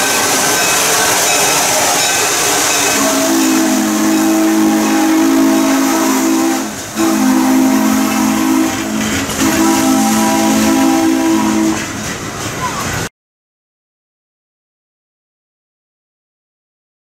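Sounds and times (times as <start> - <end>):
steam locomotive whistle blasts: 0.0 - 12.0
train rolling past hissing: 0.0 - 13.1.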